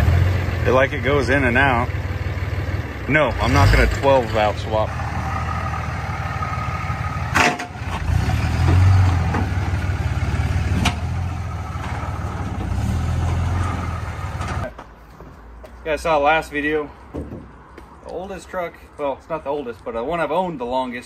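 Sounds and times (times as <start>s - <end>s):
diesel engine running: 0.0s - 14.7s.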